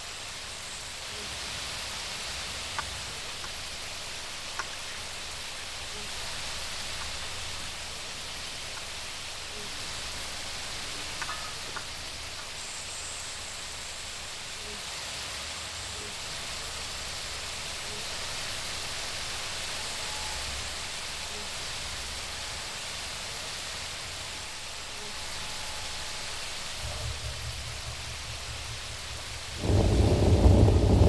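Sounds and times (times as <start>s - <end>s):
hot oil sizzling: 0.0s - 31.0s
low rumble: 26.7s - 31.0s.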